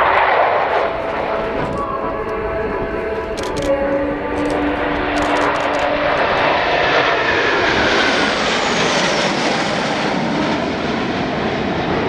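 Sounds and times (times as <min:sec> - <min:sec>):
jet roar: 0:00.0 - 0:12.0.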